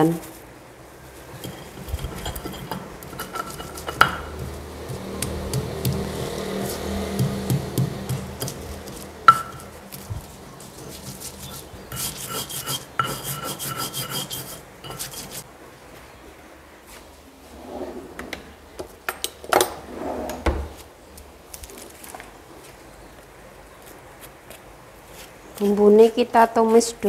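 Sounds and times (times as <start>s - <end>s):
pestle grinding in mortar: 1.2s - 15.4s.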